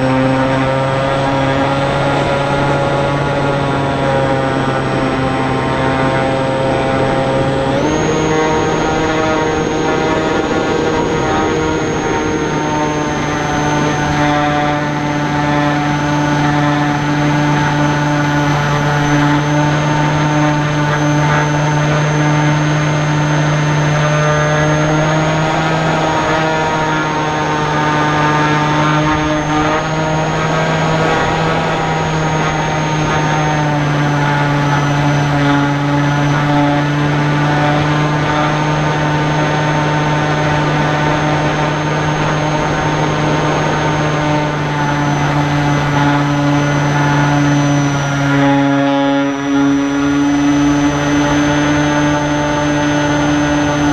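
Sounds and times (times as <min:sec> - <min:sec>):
electric motor and propeller whine: 0:00.0 - 0:53.9.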